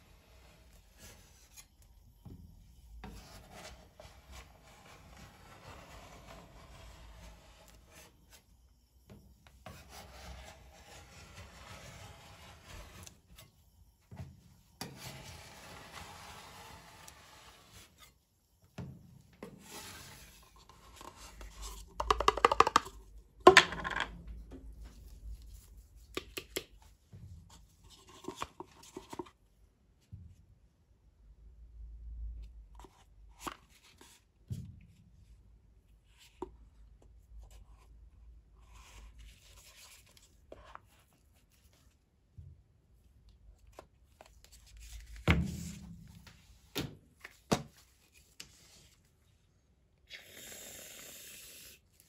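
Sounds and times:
knocks and scrapes in paper cup: 19.4 - 24.9.

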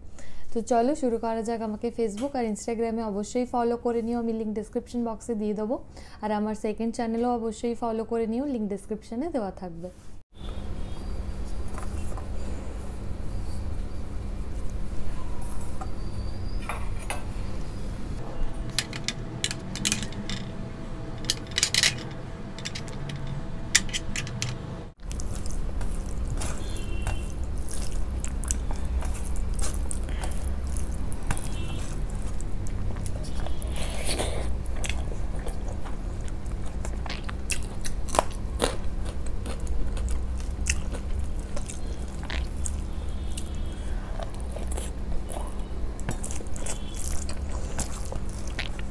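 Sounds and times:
low hum: 10.4 - 48.9
chewing: 25.0 - 48.9.

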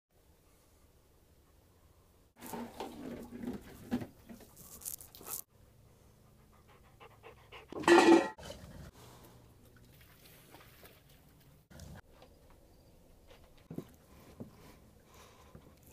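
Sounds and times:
dog panting: 5.5 - 8.0.

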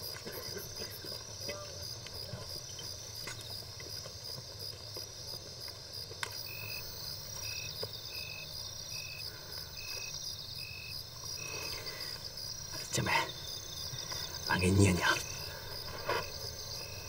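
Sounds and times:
high insect trill: 0.0 - 17.0
low cricket chirp: 0.0 - 17.0.

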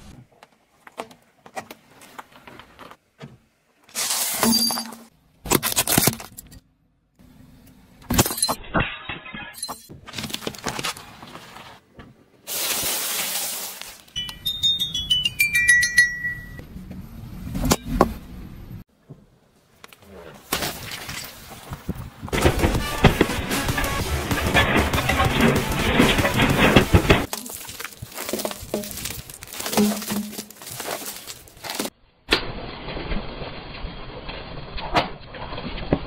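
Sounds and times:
tyre crushing small objects: 9.9 - 11.7, 20.4 - 32.0
toy xylophone notes: 14.2 - 16.6.

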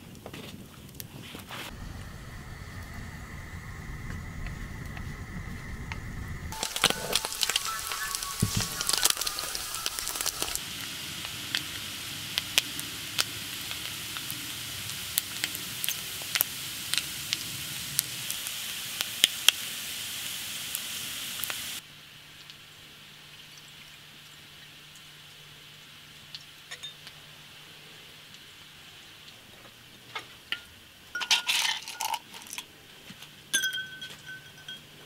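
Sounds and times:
faint steady hum: 1.7 - 18.0
food frying in hot oil: 1.7 - 32.6.

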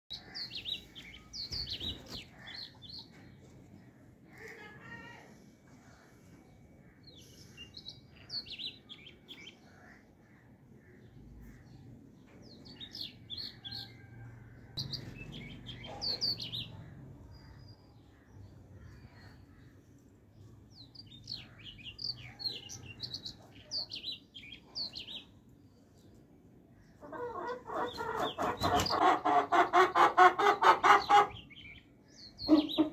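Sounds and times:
chicken clucking: 27.0 - 31.6, 32.4 - 32.9
chicks chirping: 27.0 - 31.6.

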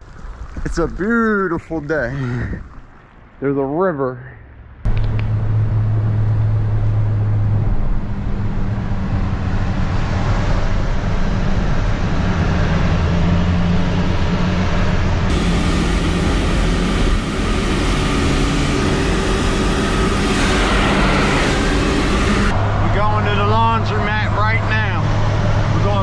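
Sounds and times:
engine hum: 4.6 - 26.0
tyres hissing on wet pavement: 15.3 - 22.5.

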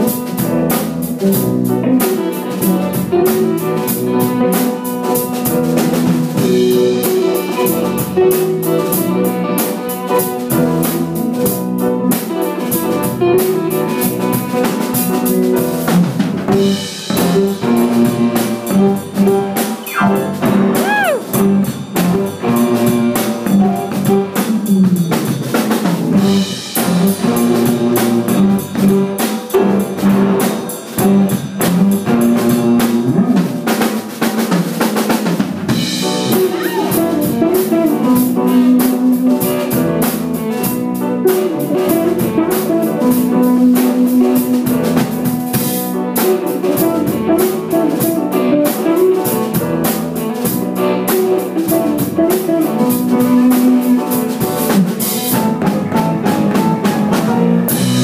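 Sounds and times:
drum kit: 0.0 - 58.0
electric bass line: 19.8 - 21.3
electric guitar: 36.0 - 58.0.

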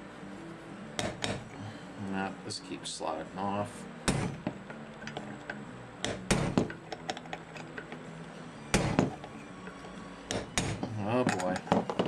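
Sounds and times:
hammer striking metal punch: 1.0 - 1.5, 4.1 - 4.6, 6.0 - 7.2, 8.7 - 9.4, 10.3 - 12.0.

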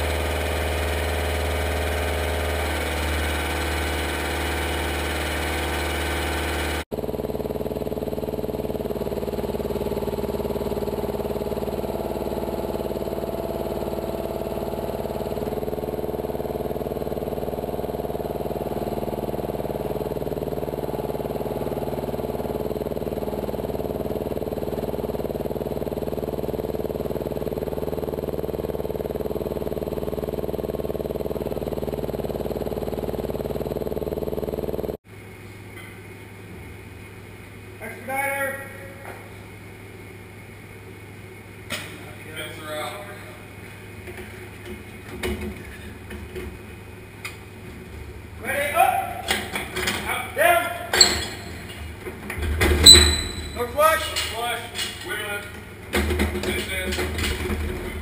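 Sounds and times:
truck engine humming: 46.6 - 55.9.

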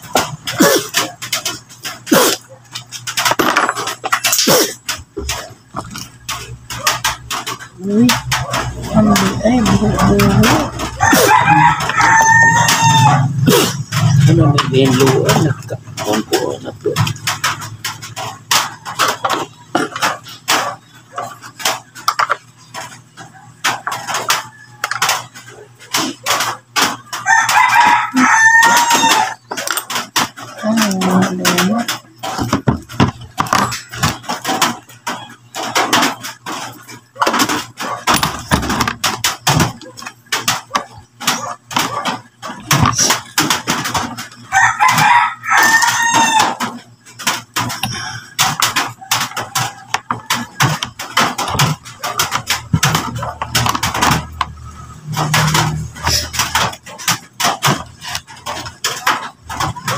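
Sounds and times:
plastic clicks and knocks: 0.0 - 13.0, 13.8 - 28.0, 28.6 - 59.9
rooster crowing: 10.8 - 13.4, 27.2 - 29.5, 44.4 - 46.8.

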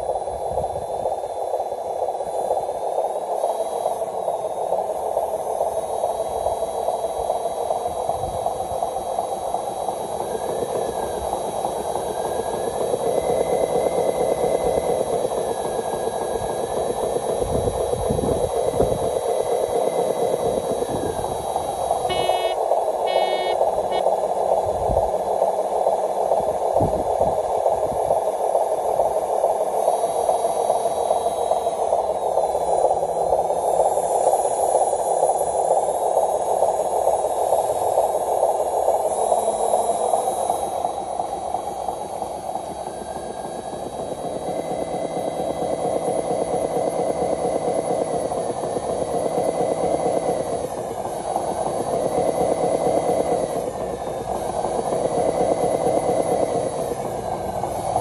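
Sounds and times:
higher motor whine: 0.0 - 25.0, 38.4 - 58.0
model truck motors whining: 3.7 - 24.1, 39.0 - 58.0.

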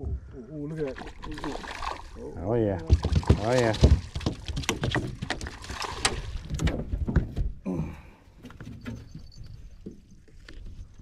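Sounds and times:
knocks on aluminum boat: 2.8 - 5.4.

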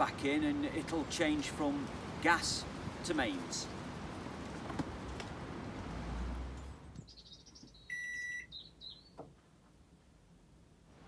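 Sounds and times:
outdoor background noise: 0.0 - 11.0
faint bird chirps: 7.0 - 9.2
short electronic beep: 7.9 - 8.5.

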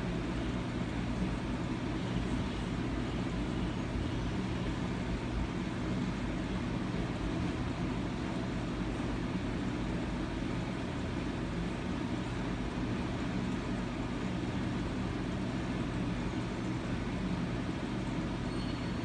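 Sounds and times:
low rumble with faint hiss: 0.0 - 19.0.

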